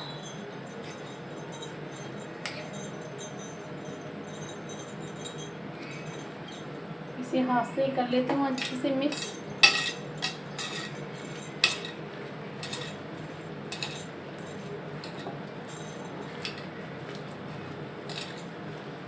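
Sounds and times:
bangles clinking: 0.0 - 6.9, 8.5 - 12.0, 12.6 - 16.7, 18.1 - 18.6
faint steady hum: 0.0 - 19.0.

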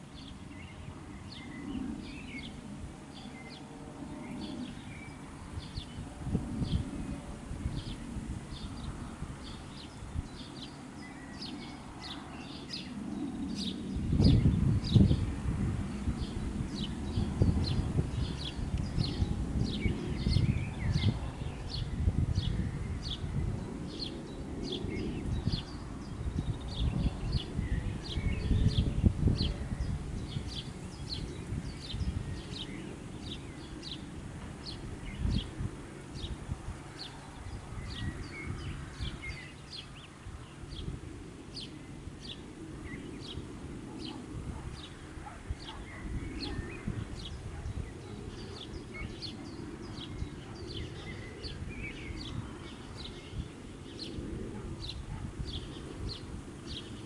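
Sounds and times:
soft bird chirps: 41.5 - 57.0.

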